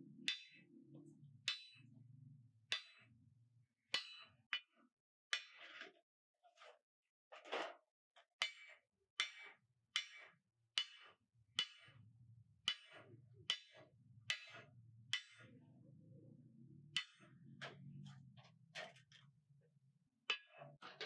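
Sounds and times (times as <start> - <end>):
hammer striking metal: 0.2 - 2.1, 4.0 - 4.4.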